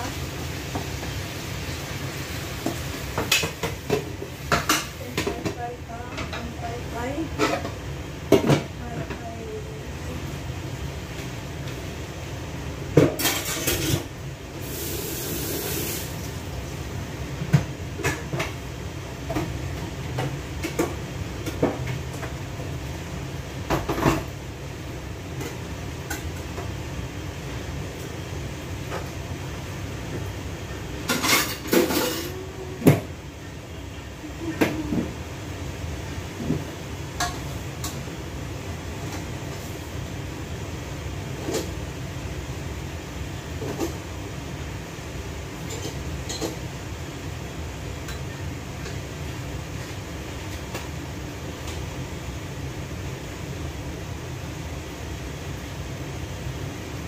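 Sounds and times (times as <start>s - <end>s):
dishes and pots clinking: 13.0s - 14.1s, 31.0s - 33.1s, 45.6s - 46.7s.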